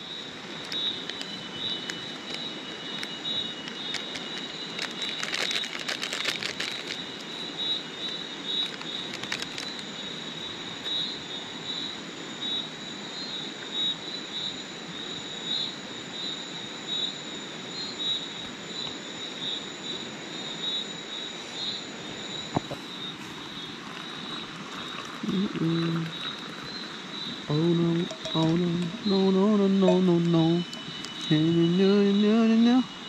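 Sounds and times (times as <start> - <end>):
insects chirping: 0.0 - 33.0
paper sachet crinkling and tearing: 3.0 - 7.4, 8.6 - 9.8
thin high whine: 25.2 - 33.0.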